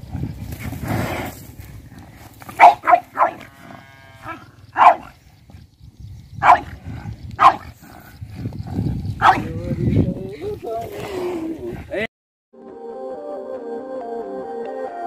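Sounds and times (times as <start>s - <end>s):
dog barking: 2.6s - 3.4s, 4.8s - 5.1s, 6.4s - 6.7s, 7.4s - 7.7s, 9.2s - 9.5s.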